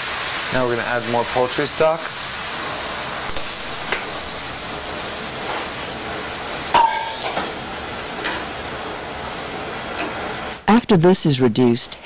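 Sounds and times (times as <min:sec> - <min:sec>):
stock sizzling in a pot: 0:00.0 - 0:10.8
metallic clank with ring: 0:06.8 - 0:07.4.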